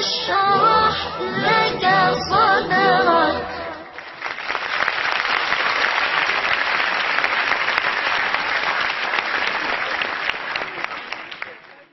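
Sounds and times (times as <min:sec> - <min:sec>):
audience applauding: 0:03.9 - 0:11.9.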